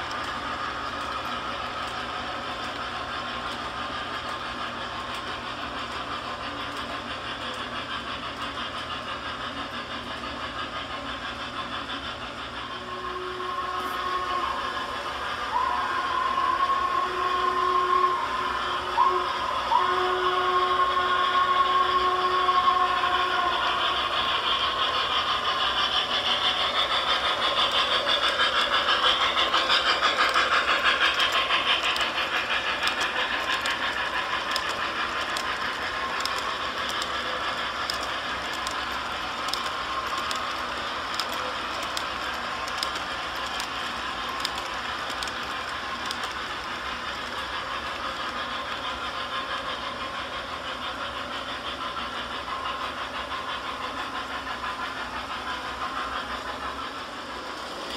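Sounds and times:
model train rattling on track: 0:00.0 - 0:57.9
clicks over rail joints: 0:27.4 - 0:48.8.

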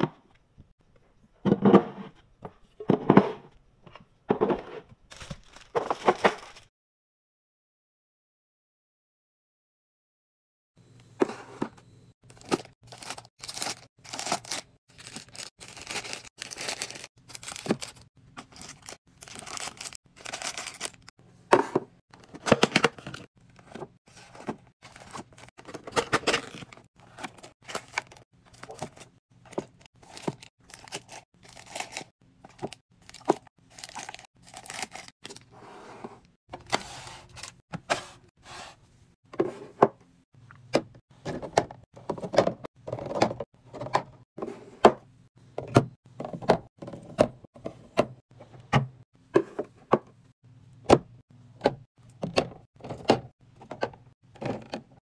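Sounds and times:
snack packets crinkling: 0:05.1 - 0:06.7, 0:12.2 - 0:21.1, 0:26.2 - 0:35.4.

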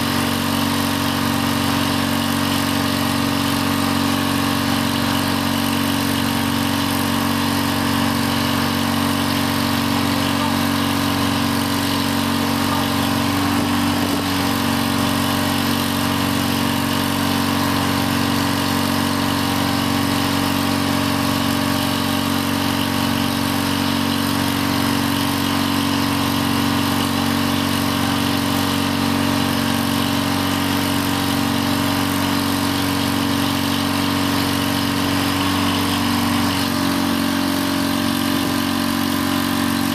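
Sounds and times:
engine running steadily: 0:00.0 - 0:39.9.

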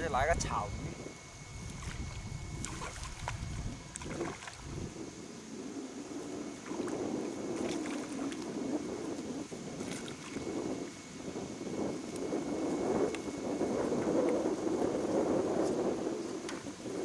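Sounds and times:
wind rumbling on microphone: 0:00.0 - 0:17.0
water splashing and sloshing: 0:01.6 - 0:04.9, 0:06.6 - 0:10.6.

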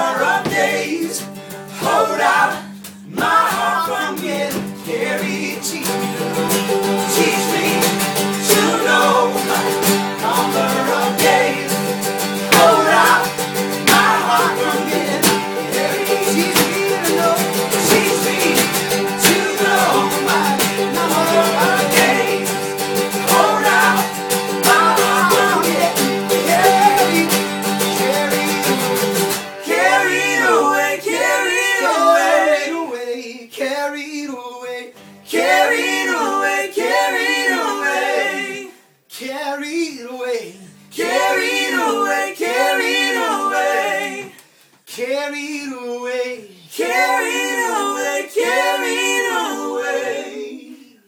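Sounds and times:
acoustic guitars strumming: 0:00.0 - 0:32.5
people singing in harmony: 0:00.0 - 0:33.1, 0:35.3 - 0:38.9, 0:40.4 - 0:44.4, 0:45.5 - 0:51.0
banjo strummed: 0:01.7 - 0:30.6.

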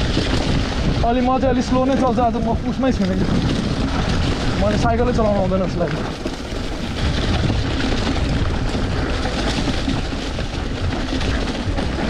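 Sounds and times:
mountain bike rattling on dirt trail: 0:00.0 - 0:12.0
wind buffeting microphone: 0:00.0 - 0:12.0.

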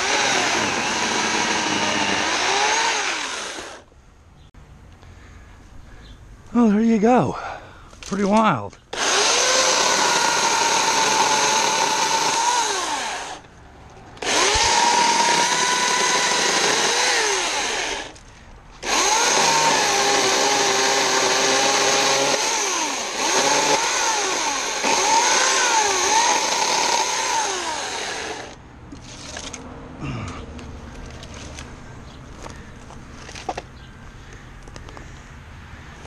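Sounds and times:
electric chainsaw cutting wood: 0:00.0 - 0:03.9, 0:08.9 - 0:13.4, 0:14.2 - 0:18.2, 0:18.8 - 0:28.6.

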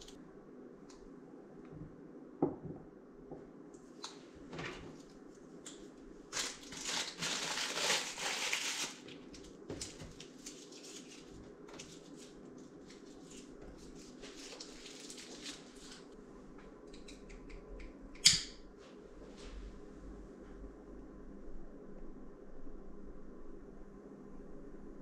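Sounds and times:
plastic and paper wrapping crinkling: 0:06.3 - 0:16.1.

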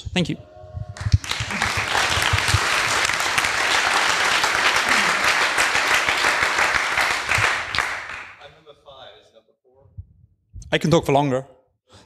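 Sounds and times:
audience applause: 0:00.9 - 0:08.4.

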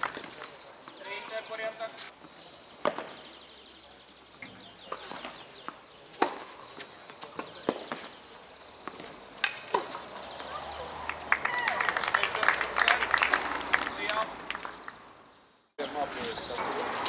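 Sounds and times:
rackets striking tennis ball: 0:02.8 - 0:03.3, 0:04.4 - 0:10.7.

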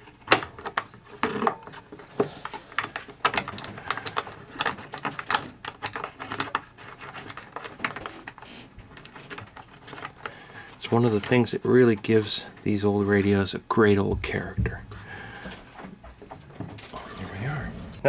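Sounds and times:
small clicks taps and scrapes: 0:00.0 - 0:13.4.

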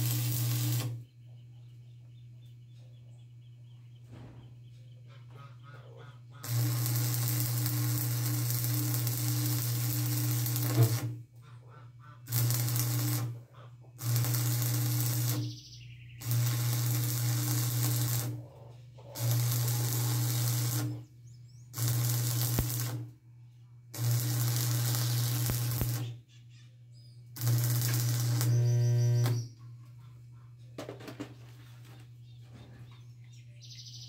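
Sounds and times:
arc welding sizzling crackle: 0:00.0 - 0:01.0, 0:06.4 - 0:11.2, 0:12.3 - 0:13.4, 0:14.0 - 0:15.6, 0:16.2 - 0:18.4, 0:19.2 - 0:21.1, 0:21.7 - 0:23.1, 0:23.9 - 0:26.2, 0:27.4 - 0:29.5
steady electrical hum: 0:00.0 - 0:33.6.

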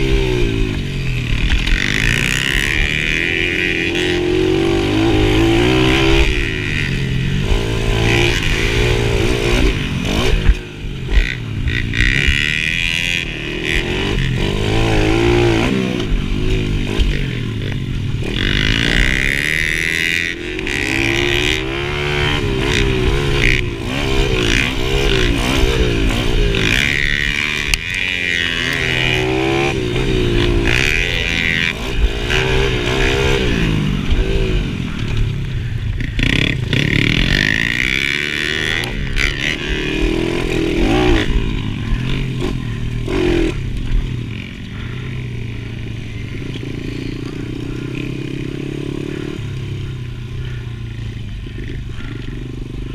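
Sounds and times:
dirt bike engine revving: 0:00.0 - 0:52.9.

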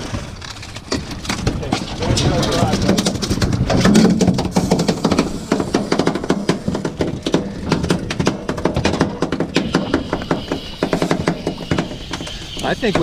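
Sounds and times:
fly reel clicking rapidly: 0:09.6 - 0:13.0.

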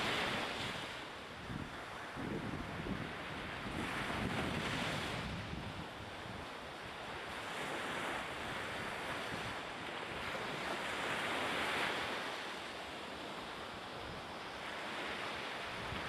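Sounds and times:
ocean waves rushing: 0:00.0 - 0:01.2
wind: 0:00.0 - 0:16.0.

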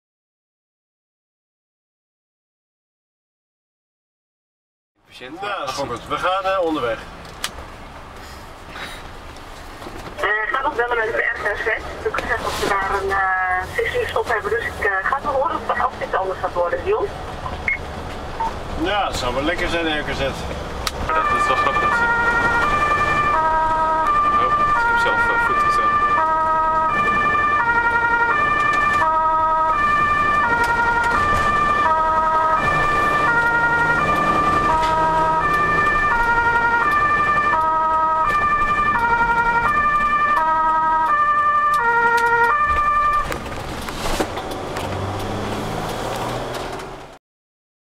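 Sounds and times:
road noise: 0:05.0 - 0:47.2
vehicle engine: 0:05.1 - 0:47.2
ambulance two-tone siren: 0:21.1 - 0:43.4.

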